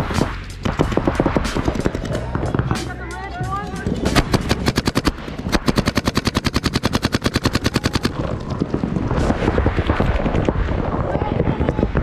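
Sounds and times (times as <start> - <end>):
paintball marker rapid firing: 0.0 - 2.6, 4.1 - 8.5
distant paintball shots: 0.0 - 2.8, 4.1 - 10.3
rustling noise: 8.2 - 11.1.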